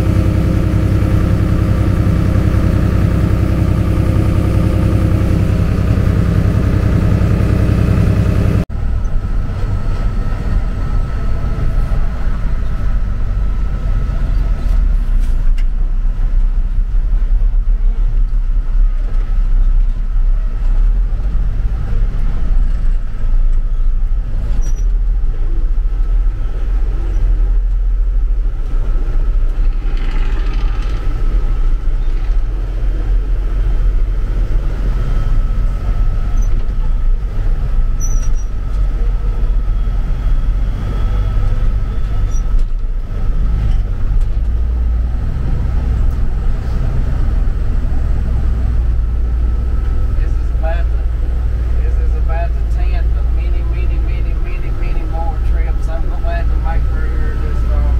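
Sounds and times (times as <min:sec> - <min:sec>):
faint steady whine: 0:00.0 - 0:45.2, 0:45.9 - 0:57.9
truck engine rumbling: 0:00.0 - 0:57.9.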